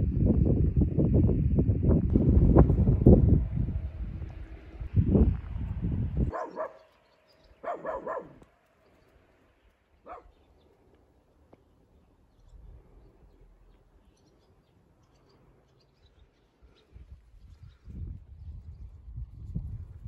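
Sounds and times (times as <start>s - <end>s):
dog barking: 6.3s - 6.9s, 7.6s - 8.5s, 10.0s - 10.4s.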